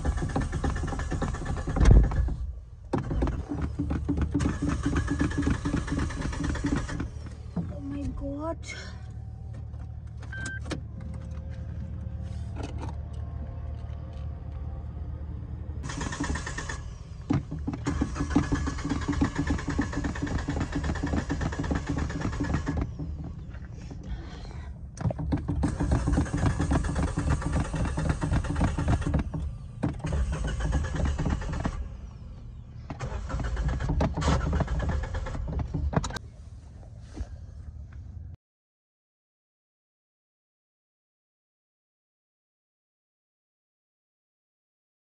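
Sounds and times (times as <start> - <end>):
starter motor cranking engine: 0.0 - 7.6, 15.8 - 36.2.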